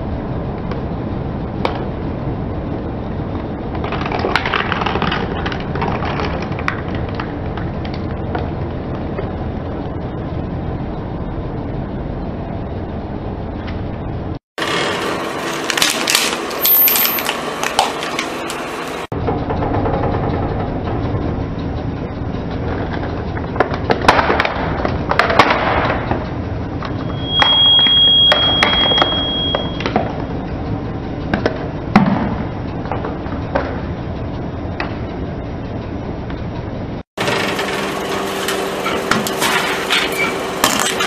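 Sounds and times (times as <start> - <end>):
tyre rolling rumble: 3.3 - 10.1
high squeal: 16.5 - 17.4, 26.9 - 30.0, 39.8 - 41.0.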